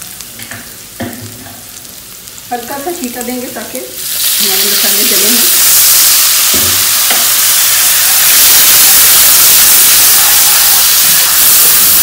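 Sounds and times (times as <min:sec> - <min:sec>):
spices sizzling in hot oil: 0:00.0 - 0:12.0.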